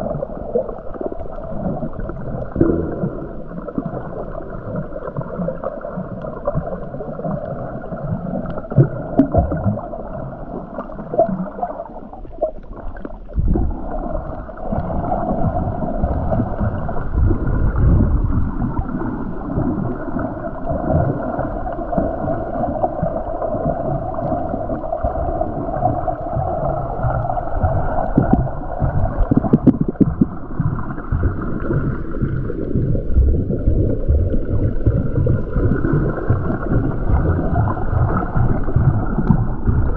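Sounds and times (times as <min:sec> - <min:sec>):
steady underwater drone: 0:00.0 - 0:39.9
water sloshing and bubbling: 0:00.0 - 0:39.9
crackly low thumps: 0:13.4 - 0:19.0, 0:25.0 - 0:39.9.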